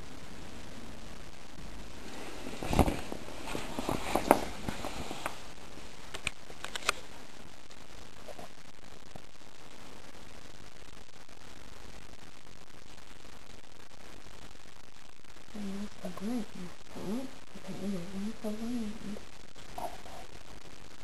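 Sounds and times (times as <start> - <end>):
steady hiss: 0.0 - 21.0
camera handling noise: 6.1 - 7.0.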